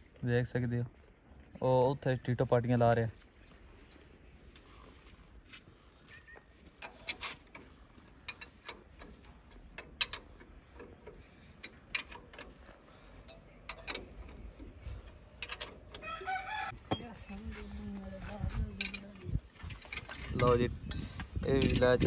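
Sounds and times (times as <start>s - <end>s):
spanner clinking on bolts: 6.7s - 16.3s, 18.5s - 22.0s.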